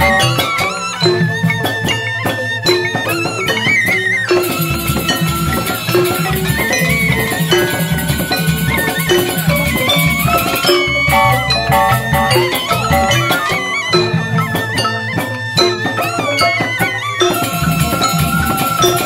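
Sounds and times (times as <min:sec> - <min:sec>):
bamboo xylophones: 0:00.0 - 0:19.0
drums: 0:00.0 - 0:19.0
wavering bamboo flute melody: 0:00.0 - 0:19.0
deep drum beat: 0:04.5 - 0:13.5.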